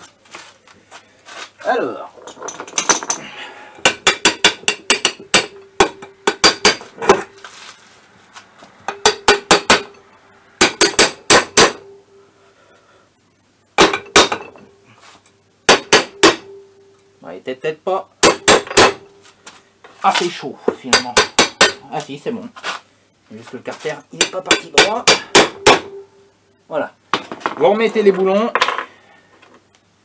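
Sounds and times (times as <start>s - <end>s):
hammer tapping metal: 3.8s - 7.3s, 8.9s - 10.0s, 10.6s - 11.9s, 15.7s - 16.6s, 18.2s - 19.1s, 20.8s - 21.9s, 24.2s - 26.0s.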